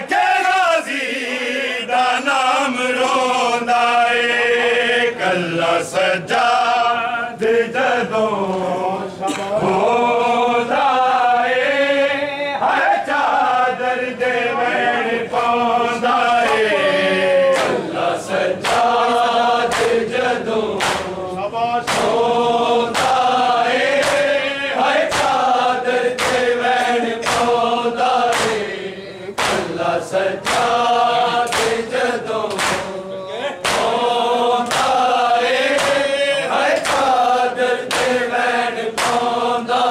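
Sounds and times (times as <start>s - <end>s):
men chanting in unison: 0.0s - 39.9s
sharp rhythmic strikes: 16.4s - 39.9s.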